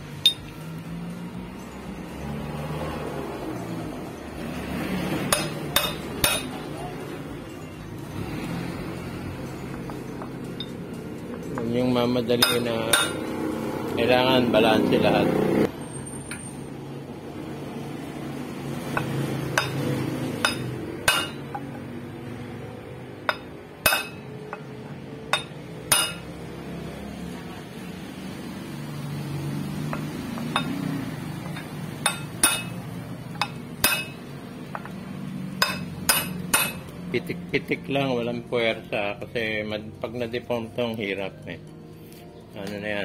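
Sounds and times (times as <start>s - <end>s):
hammer tapping metal housing: 5.3s - 6.6s, 12.4s - 13.3s, 20.4s - 21.7s, 23.2s - 24.7s, 25.3s - 26.3s, 35.6s - 36.9s.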